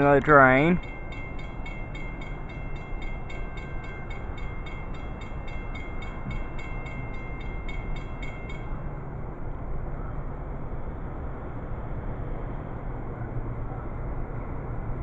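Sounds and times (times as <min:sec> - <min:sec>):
crossing bell ringing rapidly: 0:00.0 - 0:09.0.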